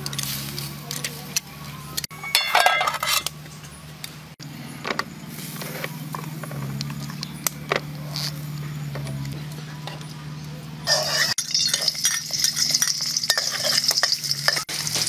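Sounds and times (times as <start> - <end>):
metal tongs scraping a wok: 0.0 - 3.8, 10.8 - 15.0.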